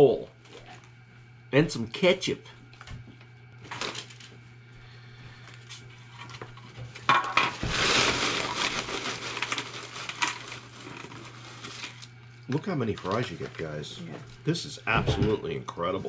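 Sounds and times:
paper bag rustling: 0:03.6 - 0:04.4, 0:07.5 - 0:14.0
fries tumbling onto a plate: 0:06.2 - 0:12.1.

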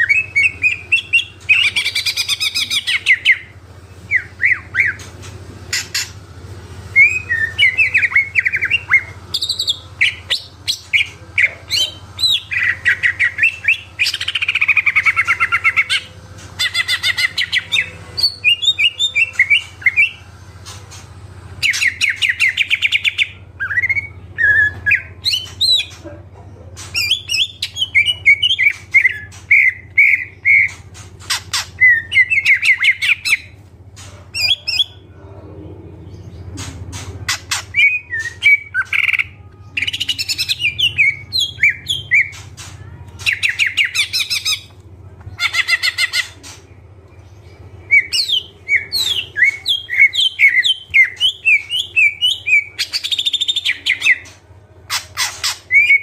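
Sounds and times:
faint low hum: 0:00.0 - 0:56.0
bird singing chirps and trills: 0:06.9 - 0:20.9, 0:36.0 - 0:44.8, 0:45.4 - 0:56.0.

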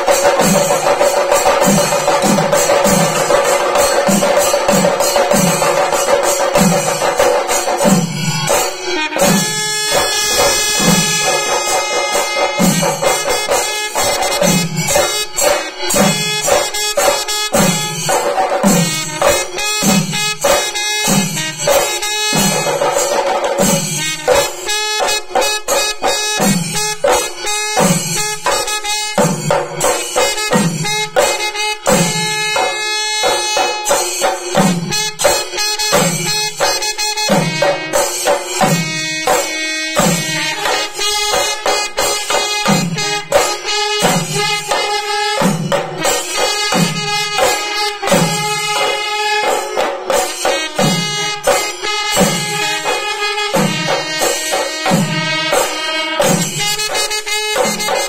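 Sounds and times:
drums playing steady rhythm: 0:00.0 - 0:58.0
jingling metal percussion: 0:00.0 - 0:58.0
sustained wind instrument tones: 0:08.1 - 0:15.0.

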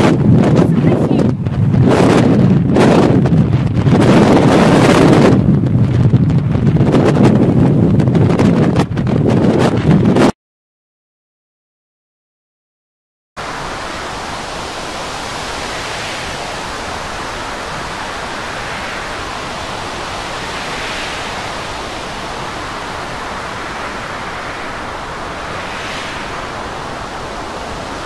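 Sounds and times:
storm wind: 0:00.0 - 0:10.3, 0:13.4 - 0:28.0
rough sea: 0:13.4 - 0:28.0.

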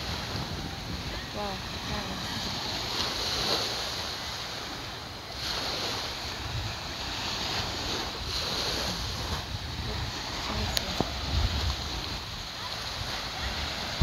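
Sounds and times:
surf washing onto beach: 0:00.0 - 0:14.0
wind rumbling on microphone: 0:00.0 - 0:14.0.

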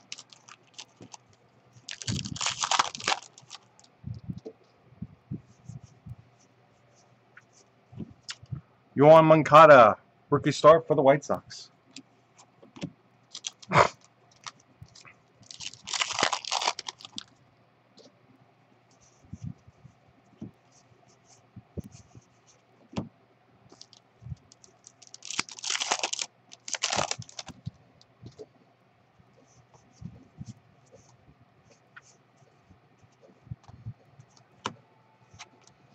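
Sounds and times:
plastic wrapper crinkling and tearing: 0:00.0 - 0:03.9, 0:13.3 - 0:17.3, 0:23.7 - 0:27.7
cards being shuffled: 0:01.9 - 0:03.7, 0:23.7 - 0:27.7.

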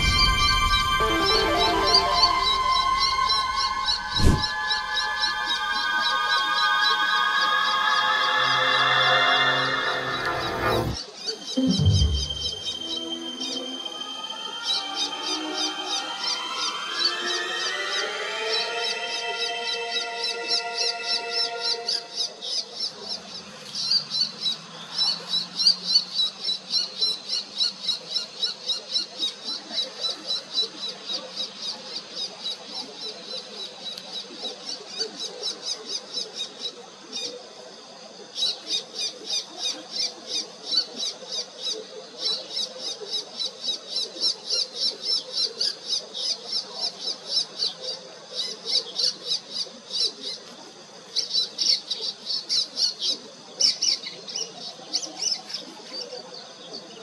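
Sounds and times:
bird high sharp call notes: 0:00.0 - 0:11.0, 0:11.6 - 0:22.8.

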